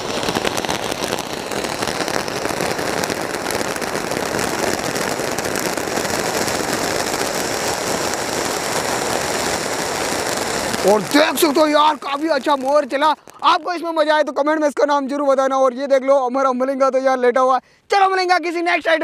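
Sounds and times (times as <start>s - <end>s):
firework fountain hissing: 0.0s - 14.6s
firework crackling: 0.0s - 15.8s.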